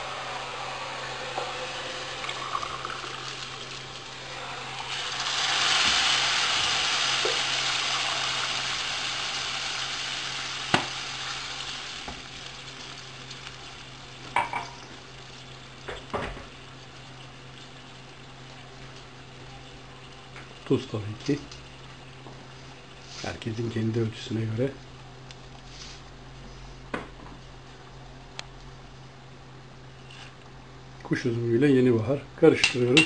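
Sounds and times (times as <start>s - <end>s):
water sizzling in hot oil: 0.0s - 26.2s.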